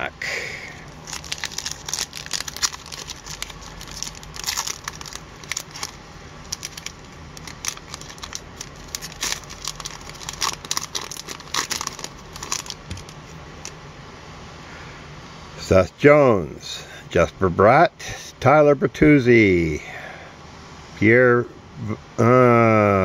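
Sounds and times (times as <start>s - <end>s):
foil wrapper crinkling: 0.7s - 13.8s.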